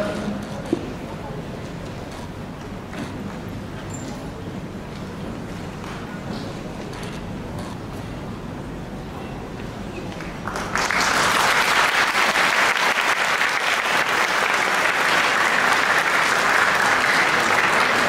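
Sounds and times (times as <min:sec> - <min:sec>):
audience applauding: 0:10.1 - 0:18.0.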